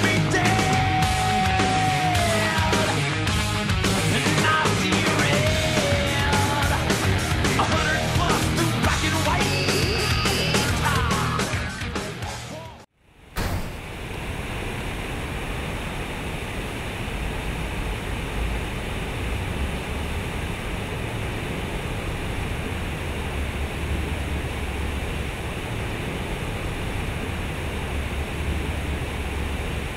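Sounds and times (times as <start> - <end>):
low rumble: 13.2 - 29.9.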